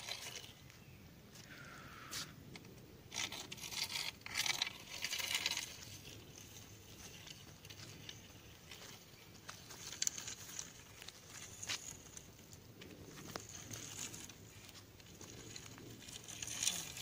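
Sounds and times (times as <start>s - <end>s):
footsteps crunching on gravel: 4.6s - 17.0s.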